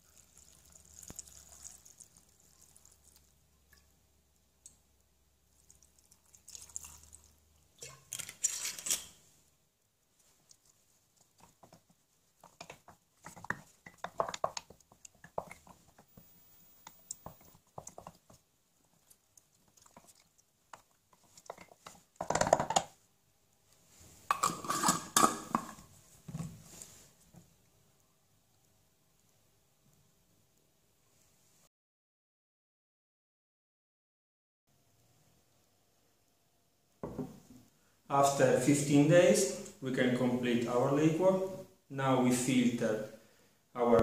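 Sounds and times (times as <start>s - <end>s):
liquid pouring into glass jar: 0.0s - 4.0s, 5.5s - 9.0s
spoon mashing berries in glass: 11.2s - 16.3s
jar lid clattering: 24.3s - 25.8s.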